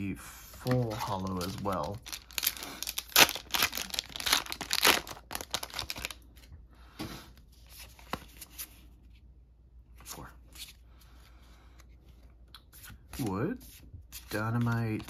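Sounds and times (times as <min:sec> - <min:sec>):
cards rustling: 0:00.5 - 0:06.5, 0:11.7 - 0:15.0
foil wrapper tearing and crinkling: 0:01.0 - 0:06.2.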